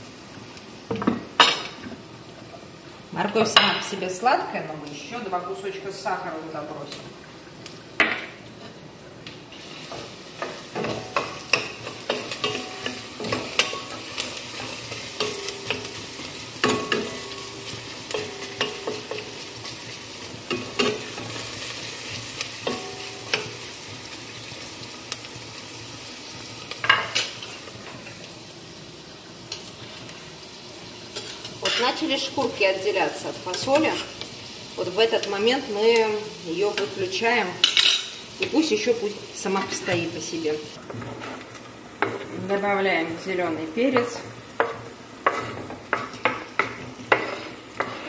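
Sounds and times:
vegetables sizzling in oil: 0:00.0 - 0:48.0
wooden spoon scraping a pot: 0:40.9 - 0:41.5, 0:44.8 - 0:48.0.

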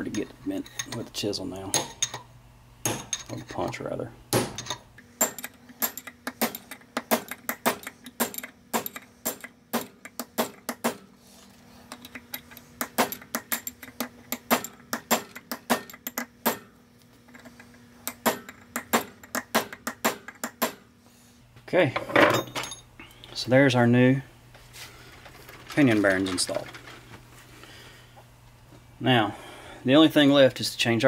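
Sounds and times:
hammer tapping steel punch: 0:02.8 - 0:11.1, 0:12.0 - 0:16.8, 0:18.0 - 0:20.9.

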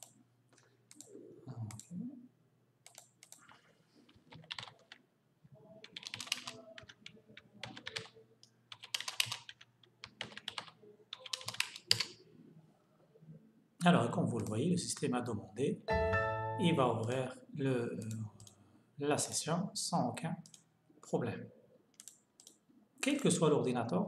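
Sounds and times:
typing on computer keyboard: 0:02.8 - 0:05.0, 0:05.8 - 0:12.2, 0:21.9 - 0:22.6.

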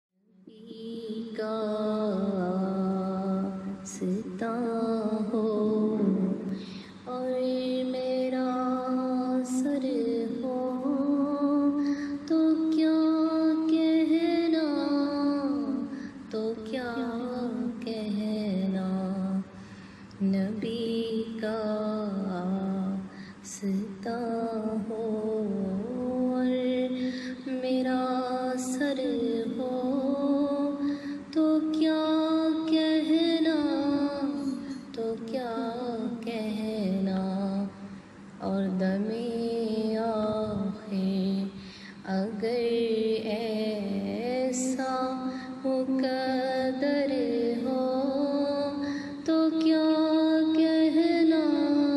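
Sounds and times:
woman singing: 0:00.4 - 0:19.6, 0:20.2 - 0:51.9.

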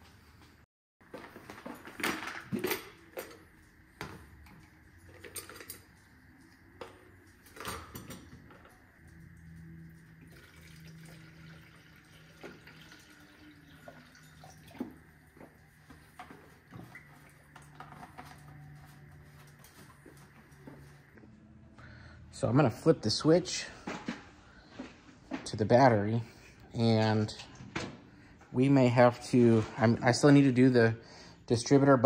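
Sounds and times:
liquid pouring through funnel: 0:08.5 - 0:18.6.

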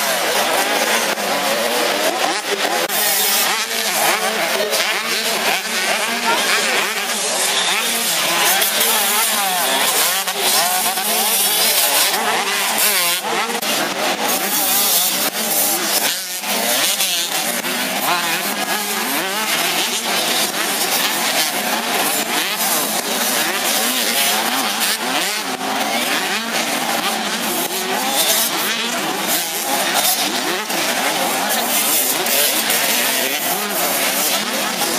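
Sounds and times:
motocross bikes revving: 0:00.0 - 0:34.9.

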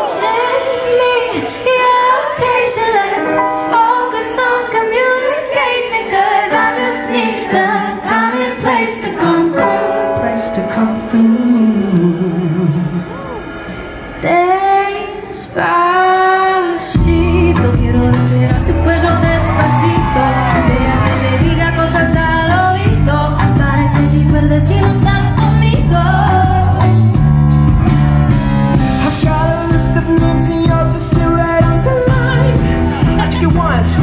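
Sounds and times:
woman singing into a microphone: 0:00.0 - 0:13.2, 0:14.2 - 0:27.0
keyboard accompaniment: 0:00.0 - 0:34.0
pulsing bass line: 0:17.0 - 0:34.0.

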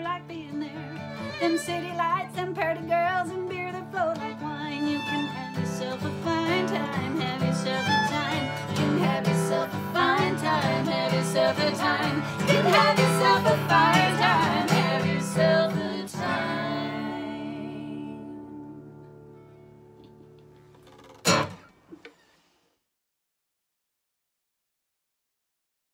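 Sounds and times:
fiddle: 0:00.0 - 0:18.4
women singing in harmony: 0:00.0 - 0:19.1
acoustic guitar: 0:00.0 - 0:22.4.

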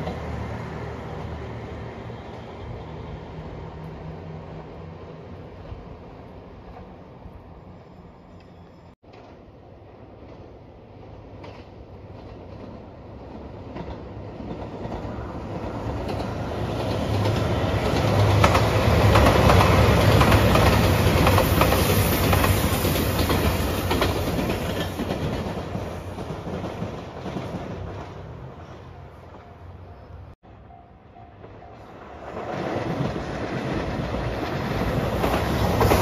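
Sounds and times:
diesel train passing: 0:00.0 - 0:36.0
wheels clacking on rail joints: 0:08.4 - 0:29.7, 0:31.2 - 0:36.0.

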